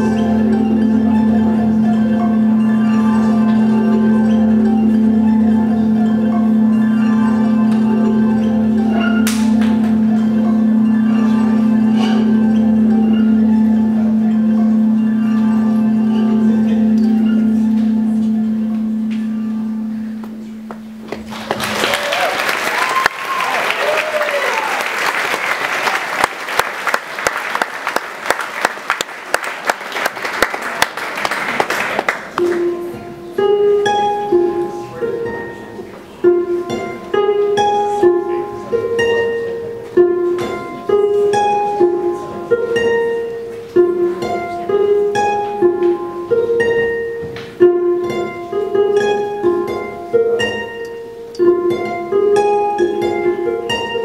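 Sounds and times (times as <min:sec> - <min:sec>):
harp plucked notes: 0:00.0 - 0:22.0, 0:27.9 - 0:54.0
audience applause: 0:21.2 - 0:32.6.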